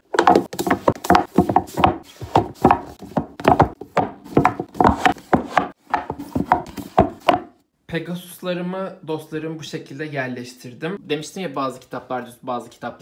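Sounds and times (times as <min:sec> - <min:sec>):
books knocking on a shelf: 0:00.1 - 0:07.5.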